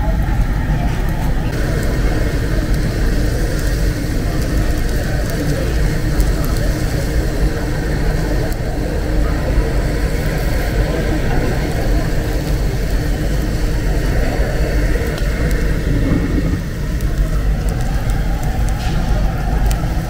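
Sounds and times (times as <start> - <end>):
busy murmur: 0.0 - 20.0
low background rumble: 11.4 - 20.0.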